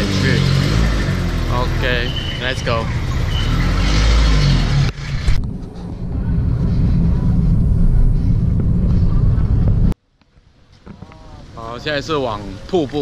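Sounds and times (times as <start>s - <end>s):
motorbike passing: 0.0s - 9.9s
busy street noise: 0.0s - 13.0s
car driving rumble: 0.0s - 13.0s.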